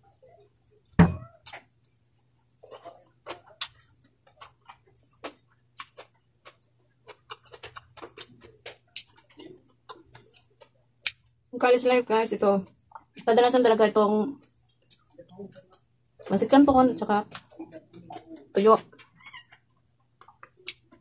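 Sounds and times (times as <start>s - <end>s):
chewing and lip smacking: 1.4s - 11.5s, 14.4s - 16.2s, 17.3s - 21.0s.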